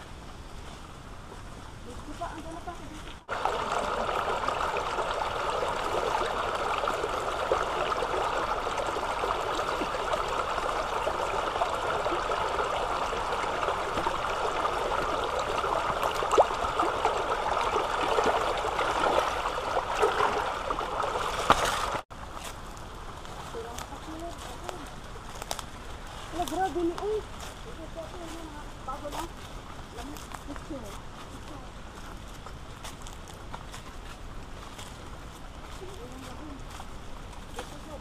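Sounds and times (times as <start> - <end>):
stream rushing over stones: 1.6 - 38.0.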